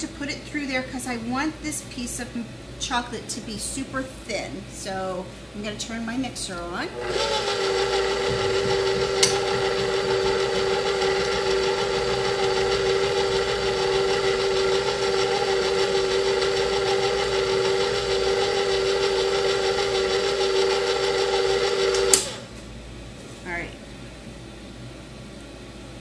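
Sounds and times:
stand mixer motor whine: 6.9s - 22.5s.

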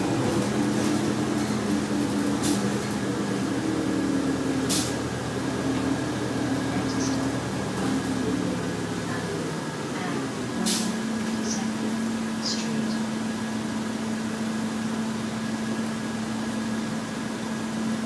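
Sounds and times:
bus diesel engine running: 0.0s - 18.0s
short air hisses: 4.7s - 5.0s, 10.7s - 11.0s.

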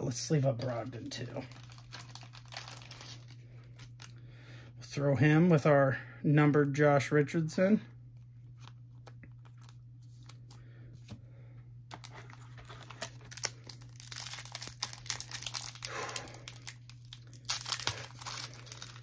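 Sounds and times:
foil wrapper crinkling and tearing: 0.6s - 4.2s, 11.9s - 19.0s.

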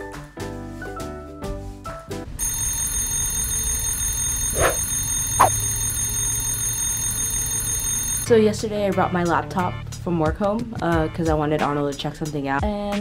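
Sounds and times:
high ringing tones: 2.4s - 8.3s.

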